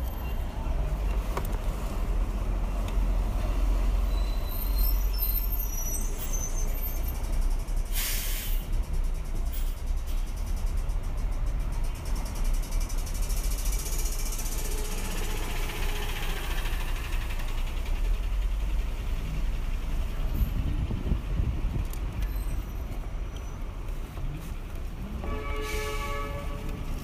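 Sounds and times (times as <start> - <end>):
engine rumble and road noise: 0.0 - 27.0
vehicles passing: 0.0 - 27.0
vehicle horn: 25.2 - 26.9.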